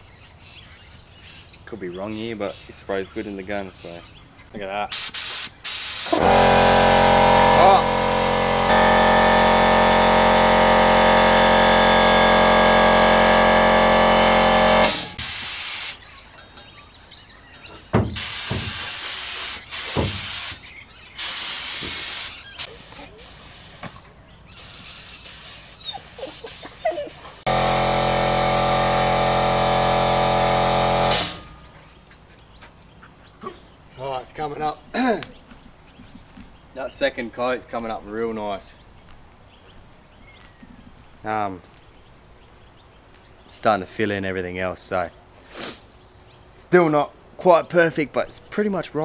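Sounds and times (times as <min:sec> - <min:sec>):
spray gun hissing: 0:04.9 - 0:16.0, 0:18.2 - 0:20.6, 0:21.2 - 0:24.0, 0:24.6 - 0:31.6
air compressor motor running: 0:04.9 - 0:16.1, 0:18.0 - 0:20.6, 0:21.2 - 0:24.0, 0:27.1 - 0:31.8.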